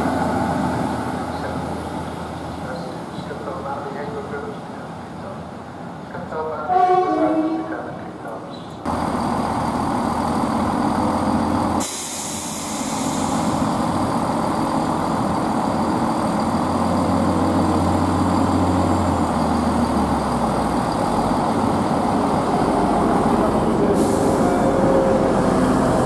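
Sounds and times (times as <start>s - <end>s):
diesel train engine idling: 8.3s - 26.0s
short hiss: 11.8s - 13.7s.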